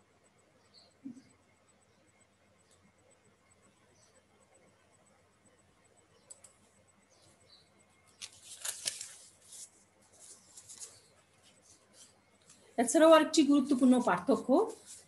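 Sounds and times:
soft clicks and rustling: 8.1s - 12.7s.

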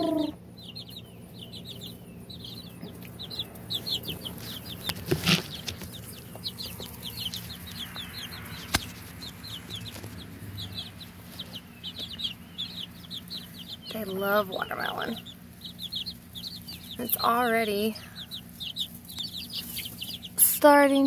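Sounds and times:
chicks peeping: 0.0s - 21.0s
rustling: 3.6s - 12.2s.

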